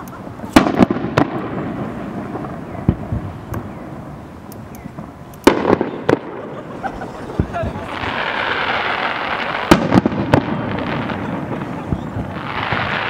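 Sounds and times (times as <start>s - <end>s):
light firework pops: 0.1s - 1.7s, 4.5s - 6.4s, 7.4s - 13.0s
rolling echo: 0.1s - 13.0s
firework shells bursting: 0.2s - 13.0s.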